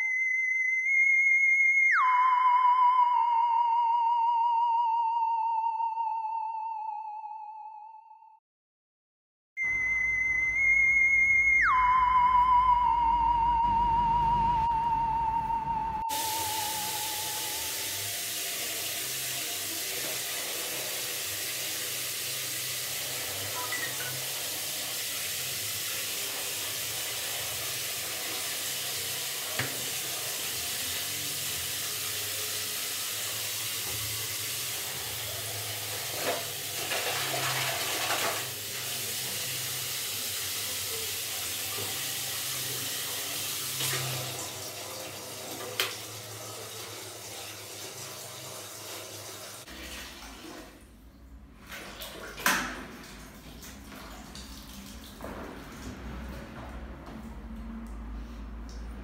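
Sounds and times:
water running into plastic bucket: 16.1 - 56.0.

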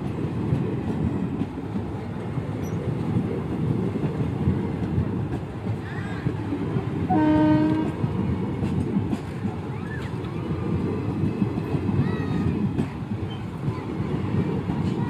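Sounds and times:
train wheels clattering on rails: 0.0 - 15.0
train horn blast: 7.1 - 8.0.

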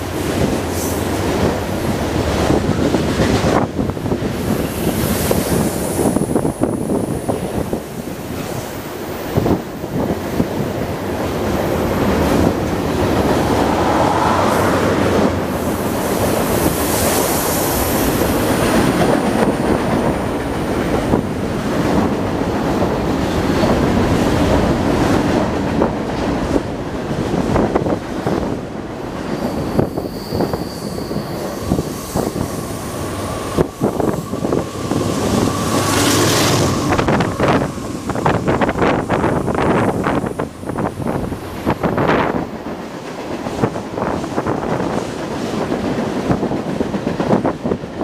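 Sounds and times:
train wheels rumbling on rail: 0.0 - 48.0
high wheel squeal: 29.3 - 41.2.

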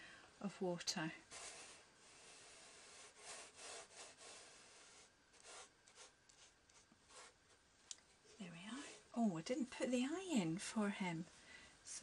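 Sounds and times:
paintbrush rasping on paper: 1.3 - 7.4.

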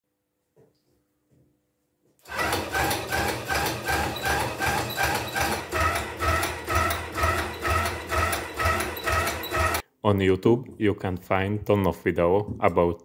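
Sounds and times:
solenoid engine knocking and buzzing: 2.3 - 9.8.

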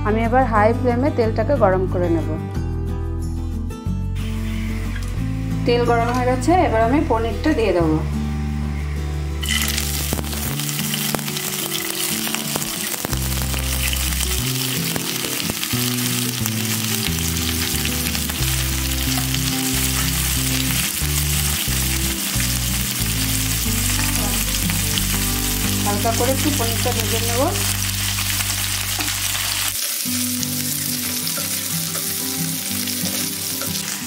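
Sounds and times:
cheese frying in hot oil: 9.4 - 34.0
crackles and spits of oil: 9.4 - 34.0.

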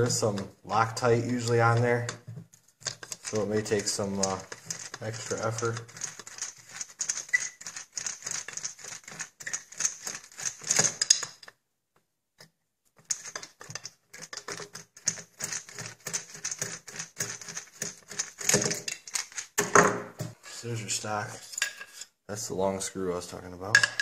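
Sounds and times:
tool clicking and rattling: 2.8 - 11.6, 13.0 - 20.4.

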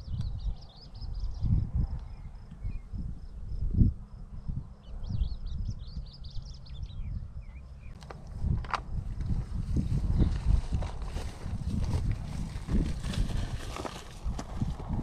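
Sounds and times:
small birds twittering: 0.0 - 3.6, 4.6 - 8.0
insects chirping: 0.0 - 14.9
wind rumbling on microphone: 0.0 - 15.0
footsteps through tall grass: 8.4 - 15.0.

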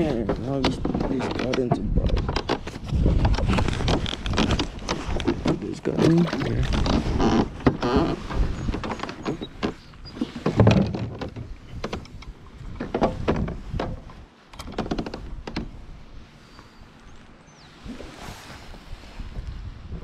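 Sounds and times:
gear knocking against hull: 0.0 - 15.8.

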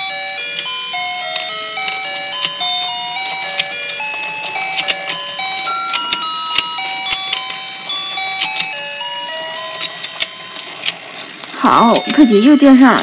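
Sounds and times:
electronic toy beeping melody: 0.0 - 13.0
plastic toy clicks and taps: 1.3 - 2.6, 3.3 - 7.6, 8.3 - 8.7, 9.6 - 13.0.

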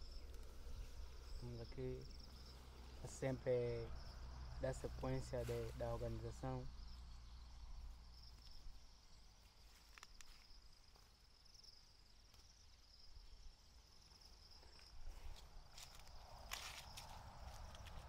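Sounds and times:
insect chirring: 0.0 - 18.0
rustles on the ground: 4.9 - 6.3, 9.4 - 11.3, 14.6 - 18.0.

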